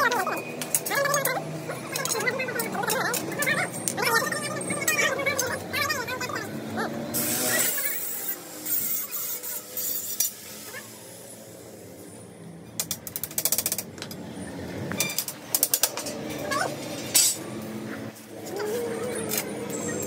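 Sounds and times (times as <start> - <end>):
metal tubes clicking and rattling: 0.1 - 5.6, 12.8 - 14.2, 15.0 - 16.4.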